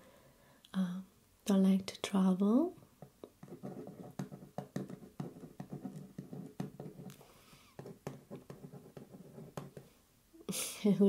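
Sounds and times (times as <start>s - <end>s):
pen scratching on paper: 3.4s - 7.2s, 7.8s - 9.9s.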